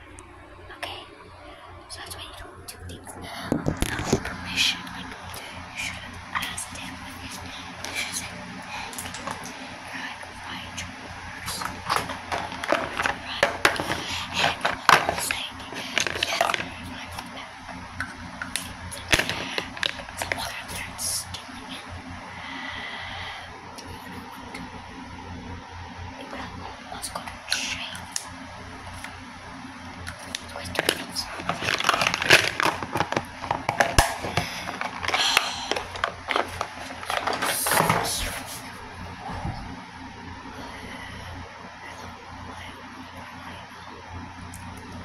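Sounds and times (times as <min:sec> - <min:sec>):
makeup items clicking and rattling: 0:08.9 - 0:09.5, 0:11.6 - 0:17.3, 0:18.0 - 0:20.9, 0:30.1 - 0:38.5
handling clicks and knocks: 0:30.8 - 0:38.1.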